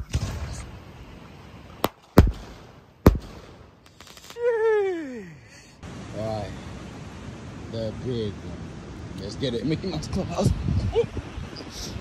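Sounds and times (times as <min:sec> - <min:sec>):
firework shells bursting: 0:01.7 - 0:04.4.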